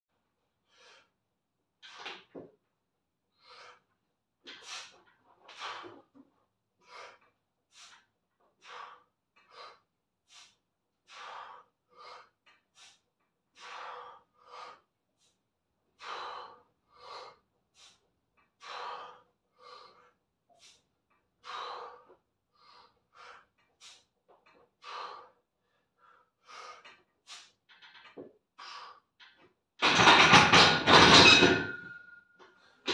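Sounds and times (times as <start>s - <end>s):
man breathing with effort: 0.5s - 1.4s, 3.3s - 27.7s, 28.5s - 29.4s.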